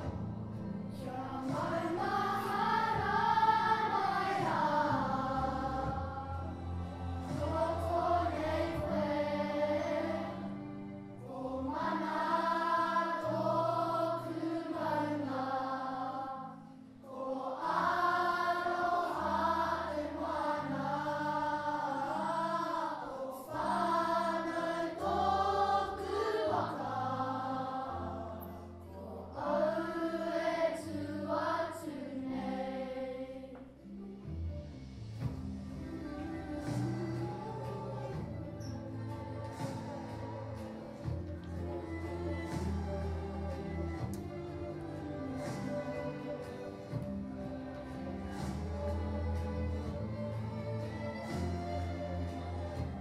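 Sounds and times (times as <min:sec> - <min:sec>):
guitar: 0:00.0 - 0:13.7, 0:33.6 - 0:53.0
children singing together: 0:00.9 - 0:33.7, 0:35.8 - 0:53.0.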